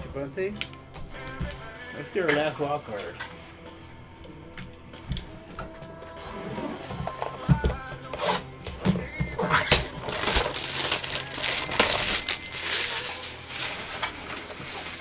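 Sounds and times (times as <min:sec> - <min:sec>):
plastic wrap crinkling: 0:09.6 - 0:15.0.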